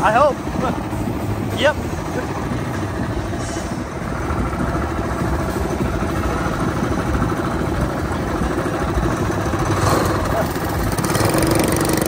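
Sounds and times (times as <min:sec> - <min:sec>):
small engine running at low revs: 0:04.0 - 0:12.0.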